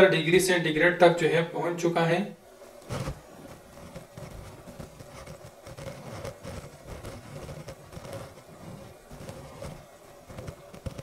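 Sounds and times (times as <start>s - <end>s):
faint steady hum: 0.0s - 11.0s
bubbles crackling on hot glass: 2.6s - 11.0s.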